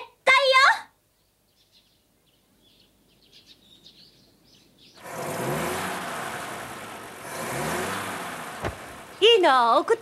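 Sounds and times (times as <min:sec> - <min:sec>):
faint birds chirping: 0:00.0 - 0:10.0
car engine with rising note: 0:05.0 - 0:09.4.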